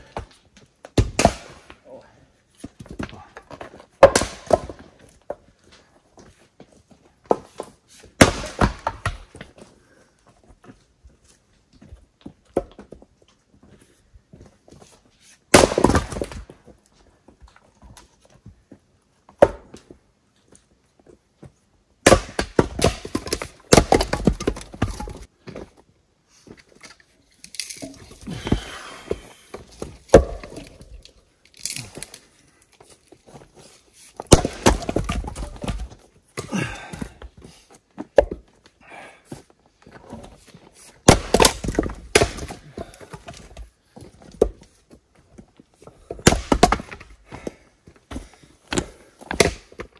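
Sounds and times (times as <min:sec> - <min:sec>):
axe chopping firewood: 0:00.0 - 0:01.8, 0:02.6 - 0:05.4, 0:07.3 - 0:09.5, 0:15.5 - 0:16.5, 0:19.4 - 0:19.8, 0:22.0 - 0:25.3, 0:27.5 - 0:32.2, 0:34.2 - 0:37.4, 0:38.0 - 0:38.4, 0:41.0 - 0:43.6, 0:46.0 - 0:47.5, 0:48.1 - 0:49.9
split wood pieces clattering: 0:26.8 - 0:28.4, 0:29.7 - 0:32.3.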